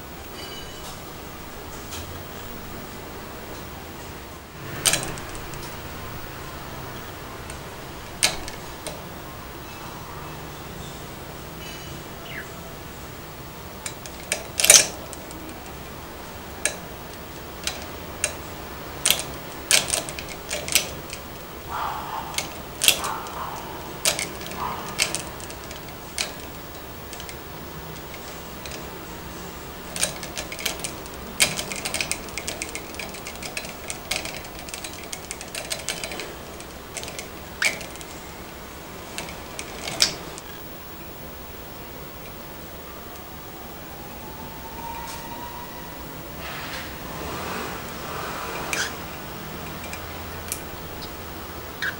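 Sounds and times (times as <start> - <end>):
budgerigar pecking clicks: 19.0 - 27.4.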